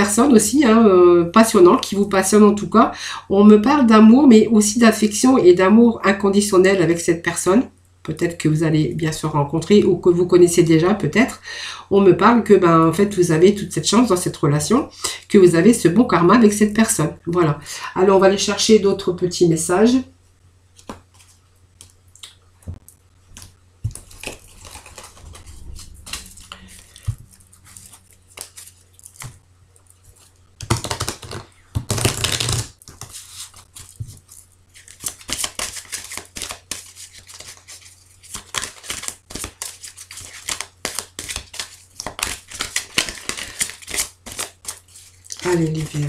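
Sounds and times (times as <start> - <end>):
playing cards shuffling: 20.7 - 22.0, 23.3 - 25.4, 26.1 - 46.0.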